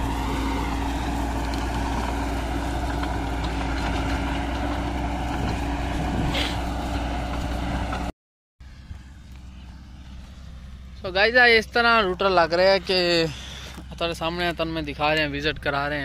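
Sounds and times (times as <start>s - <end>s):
rotavator churning soil: 0.0s - 8.1s
tractor engine running: 0.0s - 16.0s.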